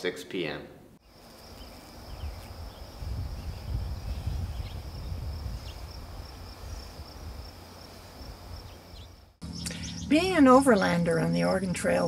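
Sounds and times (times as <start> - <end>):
wind rumble on microphone: 2.1 - 7.6.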